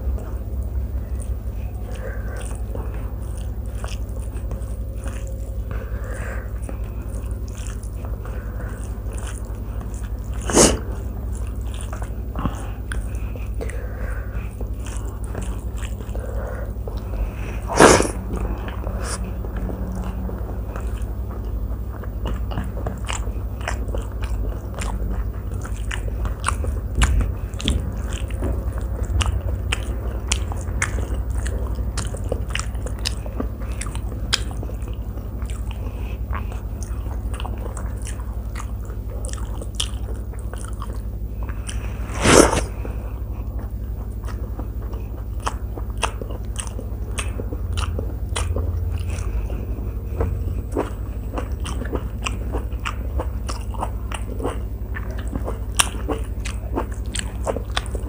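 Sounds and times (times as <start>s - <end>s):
chewing with mouth clicks: 0.0s - 58.0s
low hum: 0.0s - 58.0s.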